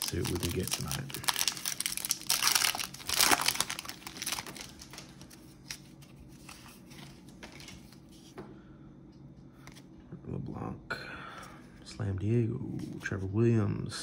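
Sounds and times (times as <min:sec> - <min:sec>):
foil wrapper crinkling: 0:00.0 - 0:08.0.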